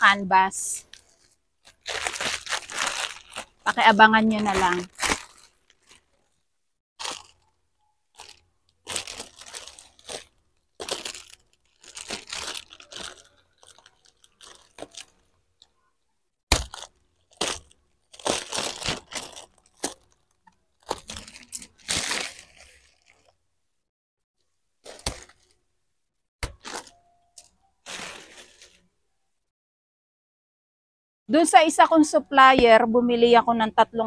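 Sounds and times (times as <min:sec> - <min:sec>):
plastic wrapping crinkling and tearing: 0:00.8 - 0:06.4, 0:07.0 - 0:15.4, 0:16.5 - 0:23.4, 0:24.8 - 0:25.6, 0:26.4 - 0:28.9
sharp plastic crack: 0:16.5 - 0:20.1, 0:26.4 - 0:27.0.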